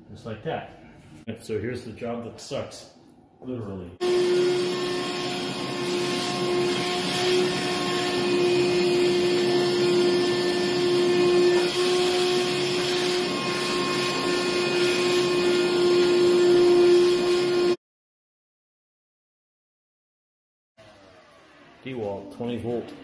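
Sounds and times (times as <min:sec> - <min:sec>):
shop vac motor whine: 0:04.0 - 0:17.8.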